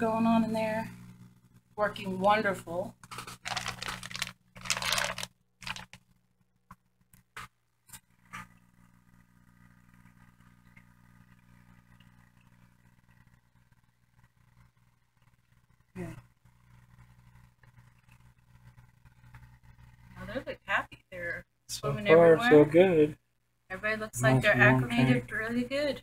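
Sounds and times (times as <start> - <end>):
aquarium air pump humming: 0.0 - 26.0
handling rustle: 3.1 - 5.9.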